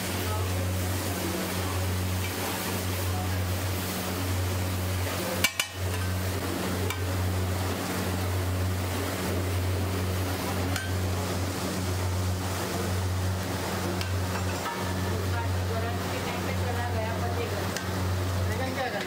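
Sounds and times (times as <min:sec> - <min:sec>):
metal clacks on griddle: 0:05.4 - 0:06.1, 0:14.0 - 0:15.0.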